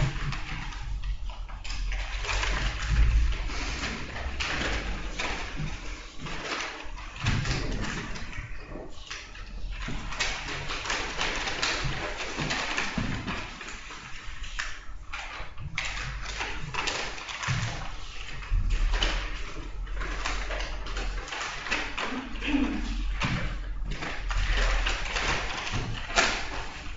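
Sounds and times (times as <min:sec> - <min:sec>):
low electrical hum: 0:00.0 - 0:26.9
papers rustling and shuffling: 0:00.0 - 0:26.9.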